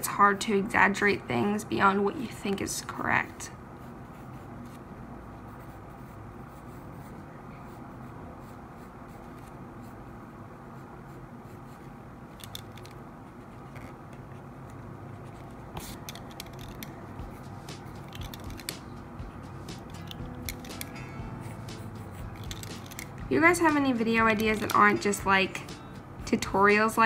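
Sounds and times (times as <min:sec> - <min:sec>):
low steady hum: 0:00.0 - 0:27.0
pencil scratching on paper: 0:03.8 - 0:04.8, 0:05.5 - 0:10.2, 0:10.8 - 0:12.0, 0:15.1 - 0:18.6, 0:20.8 - 0:24.9.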